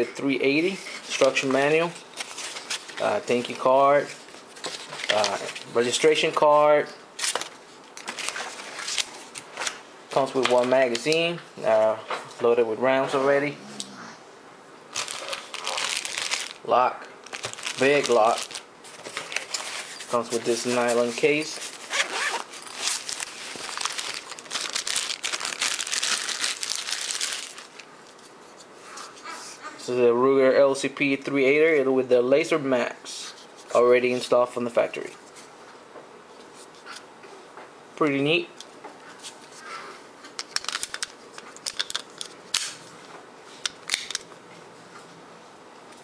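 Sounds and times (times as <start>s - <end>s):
plastic bag crinkling: 14.9s - 27.9s.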